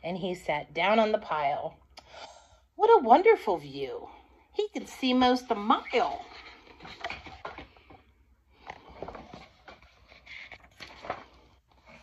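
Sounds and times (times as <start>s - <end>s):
book pages turning: 5.5s - 12.0s.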